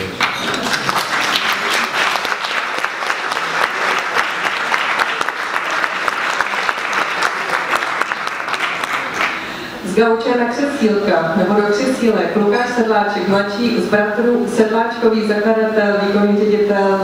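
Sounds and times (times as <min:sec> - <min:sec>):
audience applauding: 0:00.1 - 0:09.7.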